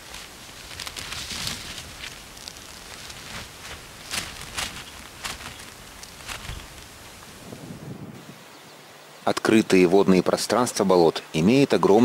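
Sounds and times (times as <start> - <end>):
rustling in dry vegetation: 0.0 - 9.0
steady outdoor hiss: 0.0 - 12.0.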